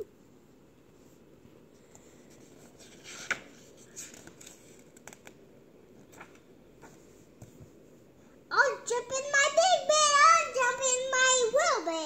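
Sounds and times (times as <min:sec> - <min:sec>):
paper rustling: 0:02.0 - 0:05.4, 0:06.0 - 0:07.6.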